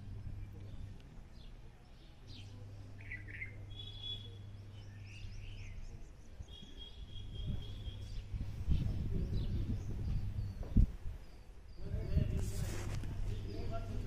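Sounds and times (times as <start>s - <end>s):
small birds chirping: 0.0s - 14.0s
steady low hum: 0.0s - 14.0s
bird trills: 3.0s - 8.3s.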